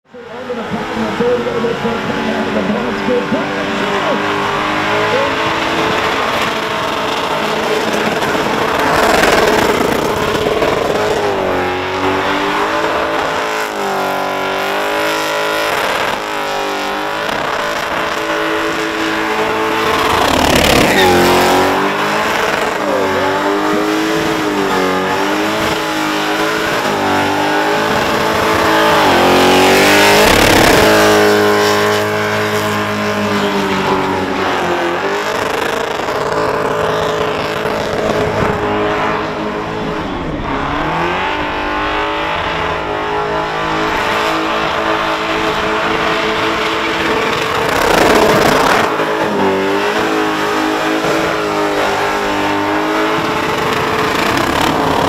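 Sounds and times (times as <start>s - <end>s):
car engine revving high: 0.0s - 55.0s.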